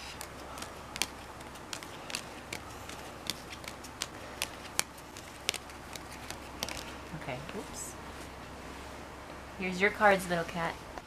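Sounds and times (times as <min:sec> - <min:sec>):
playing cards snapping: 0:00.0 - 0:07.1.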